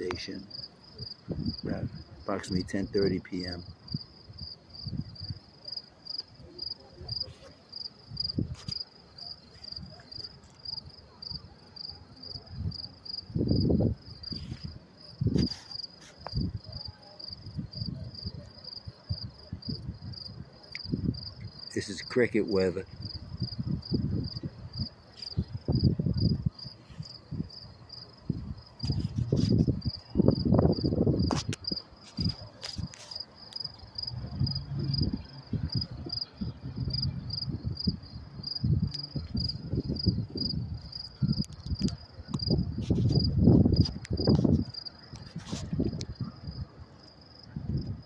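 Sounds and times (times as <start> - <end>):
crickets chirping: 0.0 - 48.0.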